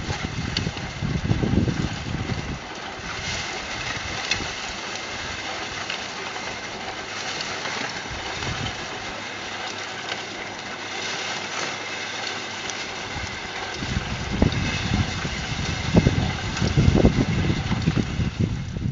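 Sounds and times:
wind buffeting microphone: 0:00.0 - 0:05.4, 0:08.1 - 0:09.0, 0:13.1 - 0:18.9
trommel rattling with soil and stones: 0:00.0 - 0:18.9.

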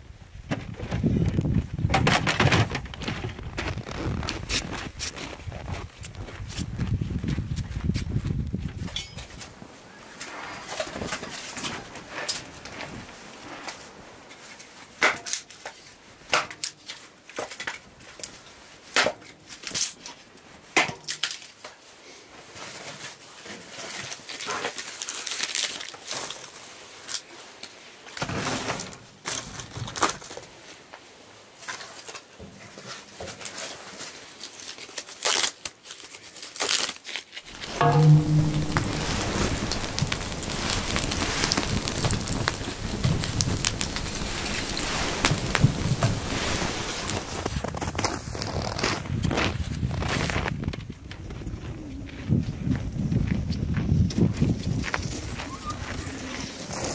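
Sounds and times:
firewood knocking and crunching: 0:37.5 - 0:47.9.

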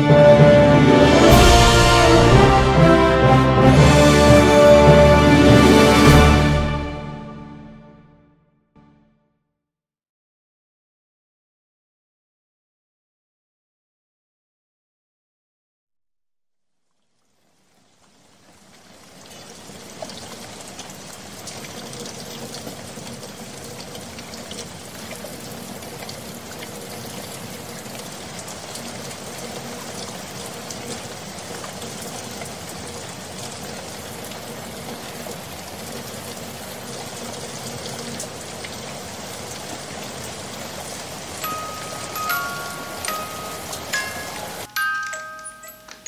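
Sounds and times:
rushing water: 0:00.0 - 0:07.4, 0:17.5 - 0:46.0
water dripping: 0:16.9 - 0:46.0.

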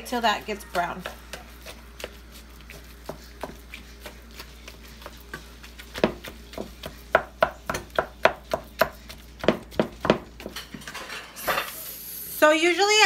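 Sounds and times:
wooden spatula knocking in frying pan: 0:06.0 - 0:10.6.

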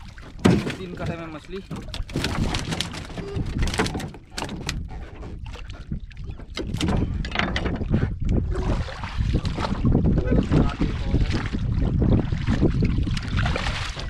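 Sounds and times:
low rumble of water: 0:00.0 - 0:14.0
wind: 0:00.0 - 0:14.0
fishing tackle clicks and knocks: 0:00.3 - 0:04.9, 0:06.4 - 0:08.0.

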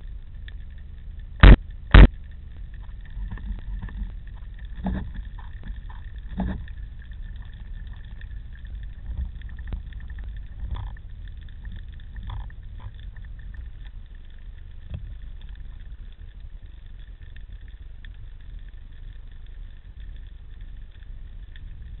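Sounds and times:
low rumble of water moving: 0:00.0 - 0:22.0.

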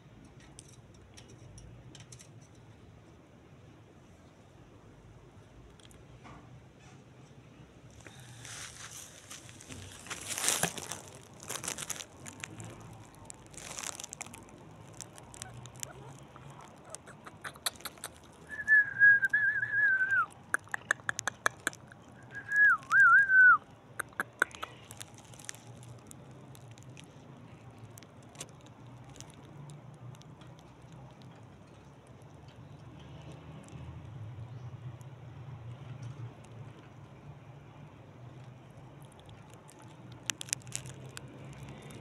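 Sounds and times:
sharp clicks: 0:14.4 - 0:18.5, 0:20.6 - 0:22.1
wavering whistles: 0:18.5 - 0:20.3, 0:22.2 - 0:23.6.

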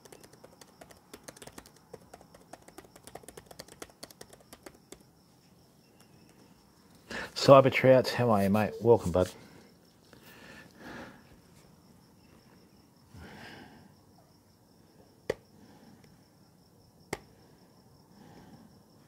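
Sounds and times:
laptop keyboard clicks: 0:00.0 - 0:05.1
crickets chirping: 0:00.0 - 0:19.0.

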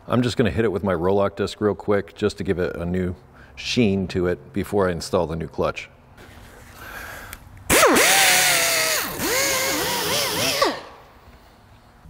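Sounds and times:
die grinder whine: 0:07.7 - 0:11.0.

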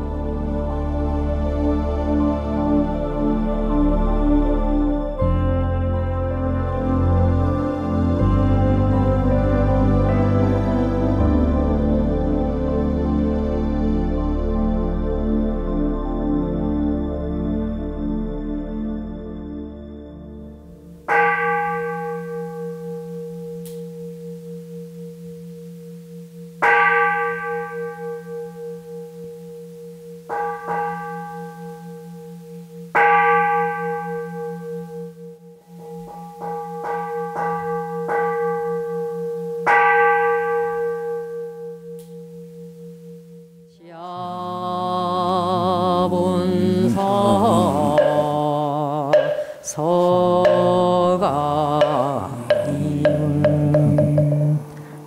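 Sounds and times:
chanting: 0:00.0 - 0:14.0, 0:43.7 - 0:55.0.

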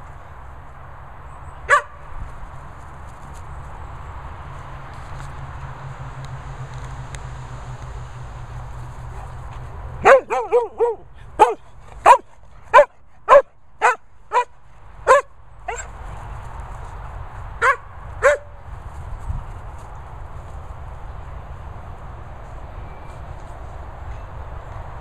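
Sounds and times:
dog barking: 0:01.7 - 0:02.0, 0:10.0 - 0:14.5, 0:15.1 - 0:15.9, 0:17.6 - 0:18.5.

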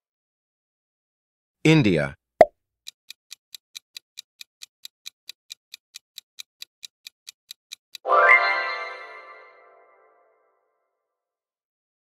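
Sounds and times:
clock ticking: 0:02.8 - 0:08.1.

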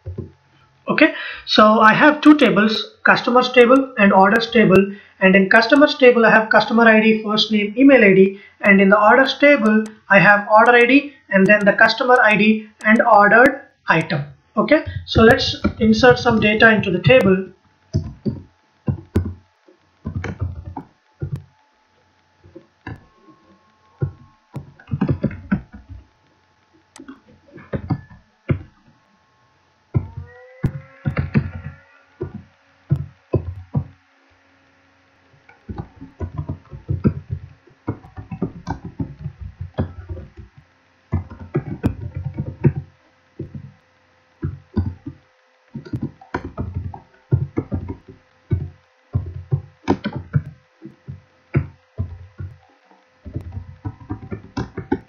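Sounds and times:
faint steady tone: 0:12.5 - 0:55.0
typing on computer keyboard: 0:24.0 - 0:26.0, 0:35.5 - 0:43.7, 0:44.4 - 0:52.6, 0:53.2 - 0:55.0.

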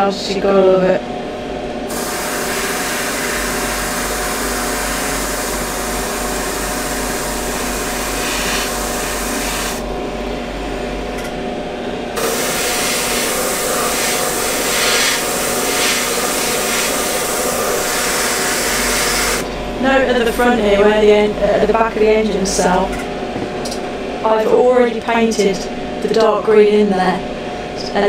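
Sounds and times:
steady hum: 0:00.0 - 0:28.0
airbrush hissing: 0:01.9 - 0:09.8, 0:12.2 - 0:19.4.

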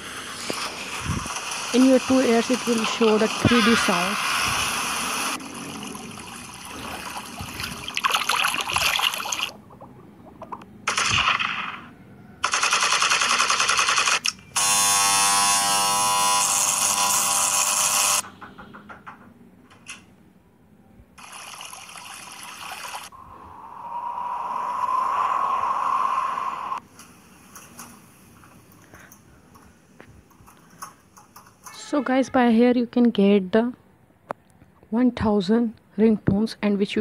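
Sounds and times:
wind-like hiss: 0:23.1 - 0:27.7.

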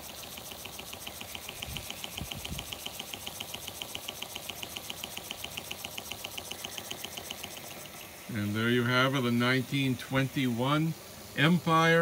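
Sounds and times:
toy steam engine puffing: 0:00.0 - 0:08.3.

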